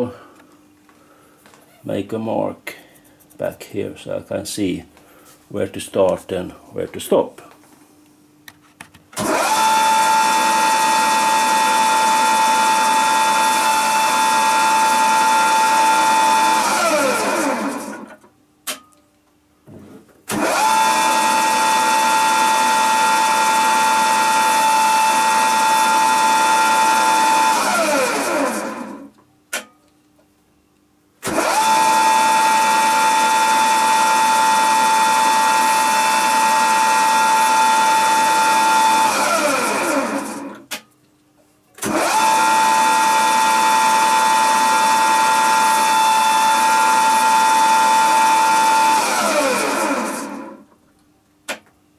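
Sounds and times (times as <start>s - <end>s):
grinder motor whining: 9.2s - 18.2s, 20.3s - 29.1s, 31.2s - 40.6s, 41.8s - 50.7s.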